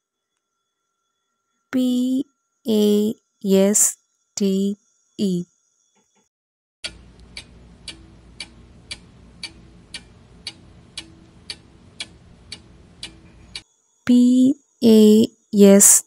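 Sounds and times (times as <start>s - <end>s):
clock ticking: 6.8s - 13.6s.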